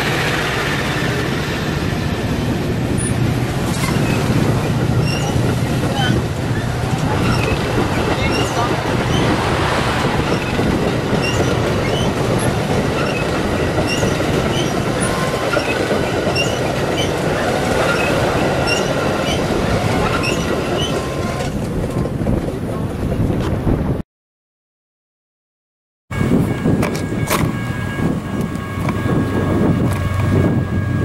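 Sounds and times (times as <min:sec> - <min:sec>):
train wheels rumbling on rail: 0:00.0 - 0:24.0, 0:26.1 - 0:31.0
high squeaks: 0:03.0 - 0:09.4, 0:10.3 - 0:17.2, 0:17.8 - 0:19.4, 0:20.0 - 0:21.1.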